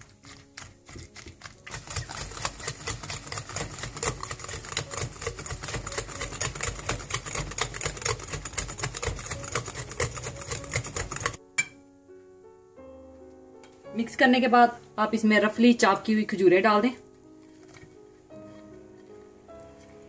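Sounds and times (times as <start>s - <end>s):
whisk clattering in bowl: 1.5s - 11.4s.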